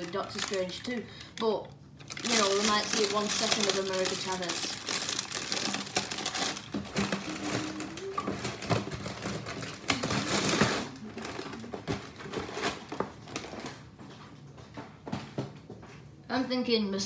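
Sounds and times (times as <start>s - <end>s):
plastic bag crinkling: 0.0s - 14.0s
packaging clicks and knocks: 2.1s - 13.8s.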